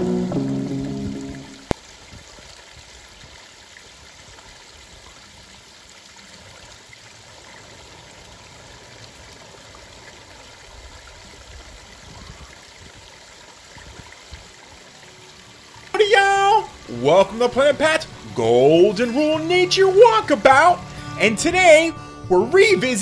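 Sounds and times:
water trickling over rocks: 0.0s - 21.8s.

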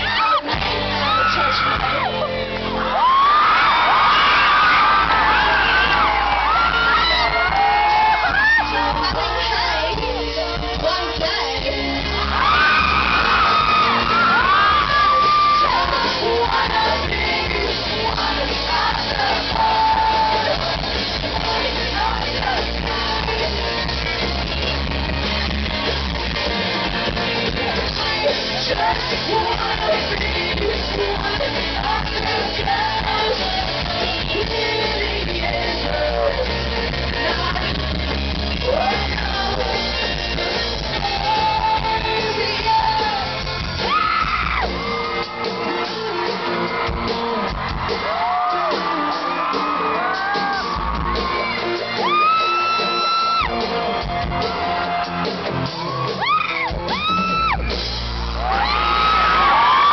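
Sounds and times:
bass guitar: 0.0s - 59.9s
drums: 0.0s - 59.9s
electric guitar: 0.0s - 59.9s
woman singing: 8.6s - 12.7s, 14.4s - 23.7s, 27.6s - 40.2s, 40.8s - 43.3s.

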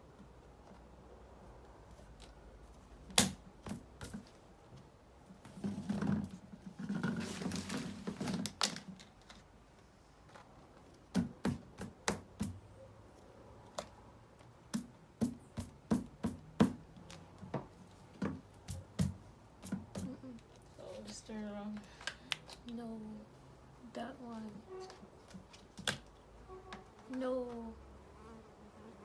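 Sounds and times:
plastic rustling scrape: 5.5s - 8.6s.

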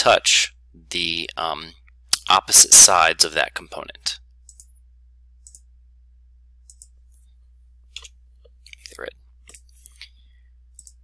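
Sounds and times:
steady low hum: 0.0s - 11.0s
computer mouse clicking: 4.4s - 4.8s, 5.4s - 5.7s, 6.6s - 7.2s, 10.7s - 11.0s.

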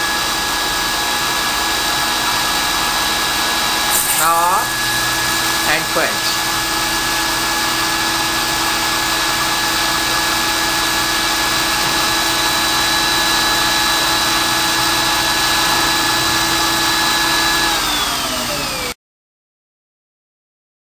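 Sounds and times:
machine whine: 3.4s - 19.0s.

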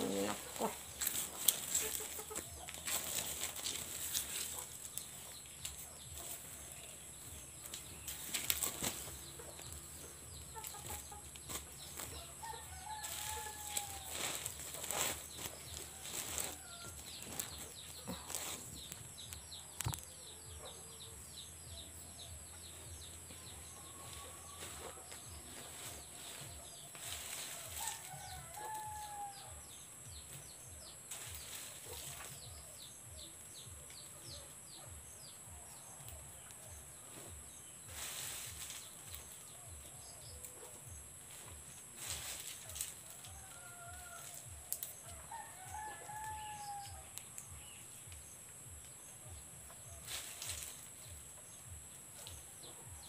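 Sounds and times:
chickens clucking: 0.0s - 6.6s, 7.6s - 12.1s
steady high hiss: 0.0s - 53.0s.

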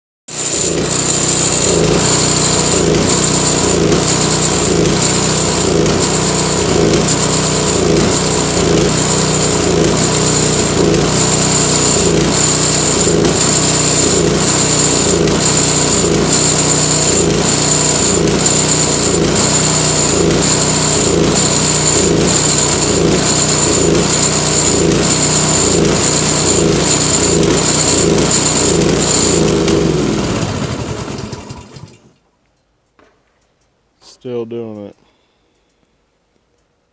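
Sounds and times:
snowblower engine running: 0.3s - 32.2s
high pulsing whine: 0.4s - 29.8s.

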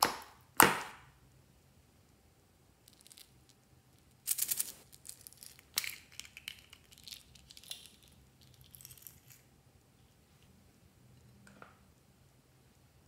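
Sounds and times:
tiny pieces rattling: 2.9s - 9.4s.

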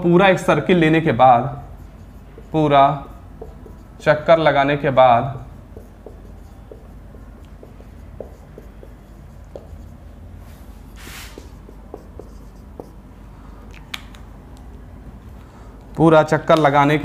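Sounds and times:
low steady hum: 0.0s - 17.0s
marker writing on whiteboard: 1.1s - 13.1s.

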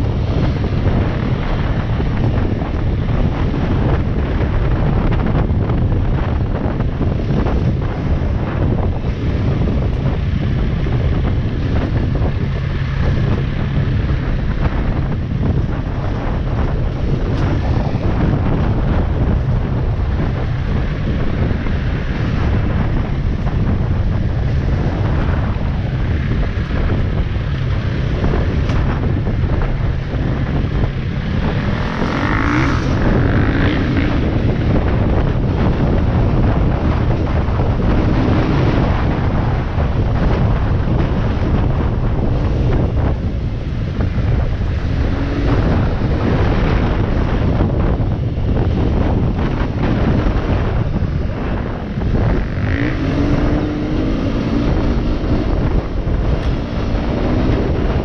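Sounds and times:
motorbike engine running: 0.0s - 58.0s
wind buffeting microphone: 0.0s - 58.0s.

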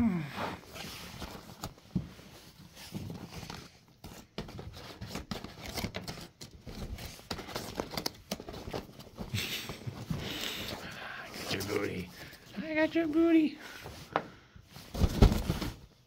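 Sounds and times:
fabric tunnel rustling: 8.4s - 16.0s.

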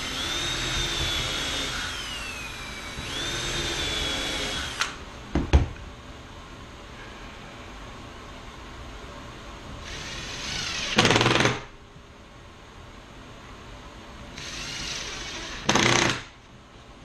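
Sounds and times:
cordless drill driving screws: 0.0s - 5.0s, 9.8s - 11.5s, 14.4s - 16.2s.

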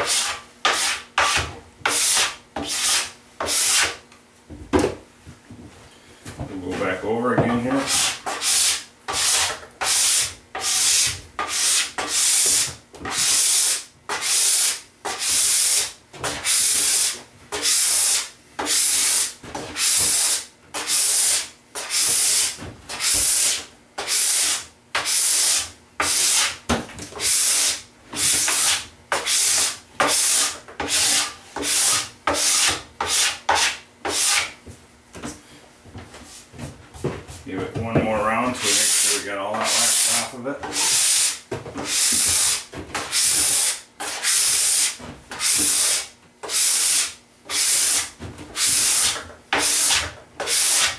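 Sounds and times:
scraper rubbing snowboard wax: 38.5s - 50.9s.

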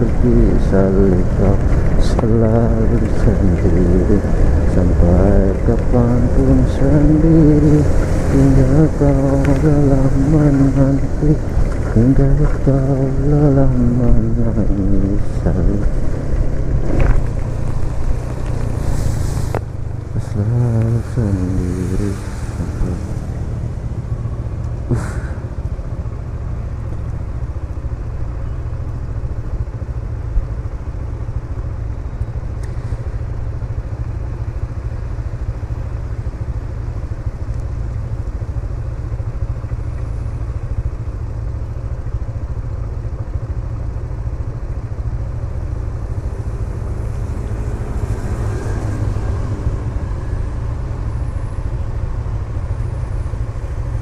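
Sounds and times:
traffic on a wet road: 0.0s - 54.0s
vehicle passing by: 1.1s - 25.7s, 46.0s - 54.0s
motor scooter idling: 19.6s - 47.8s, 49.6s - 54.0s.

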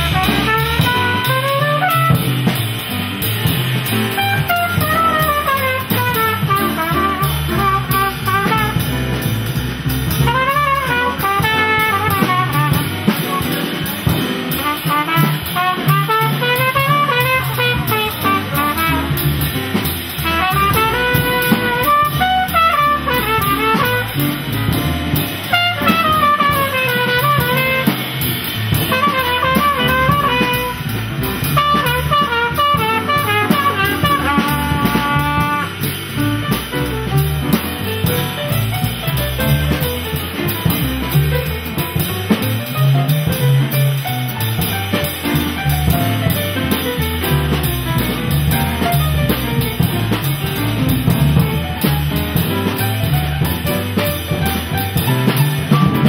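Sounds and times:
trumpet solo: 0.0s - 2.6s, 4.2s - 9.1s, 10.2s - 13.8s, 14.6s - 19.6s, 20.2s - 24.6s, 25.4s - 37.2s
piano and rhythm section: 0.0s - 56.0s.

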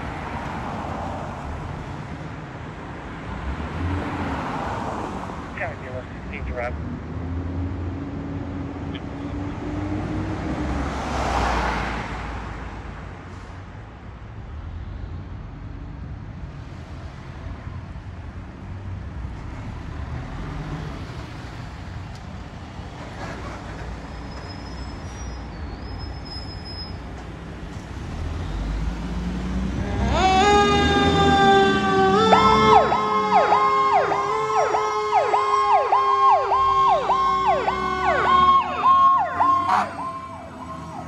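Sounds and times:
cars driving past: 0.0s - 41.0s
fire engine diesel rumble: 5.5s - 6.7s, 29.8s - 41.0s.

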